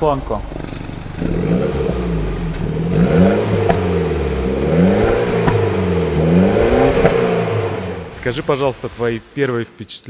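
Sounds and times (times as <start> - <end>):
car engine revving: 0.0 - 9.8.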